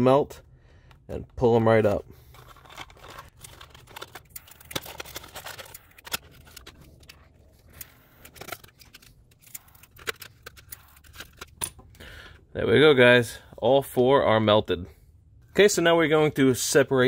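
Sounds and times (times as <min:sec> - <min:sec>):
hard plastic clicks and scrapes: 0:02.3 - 0:11.6.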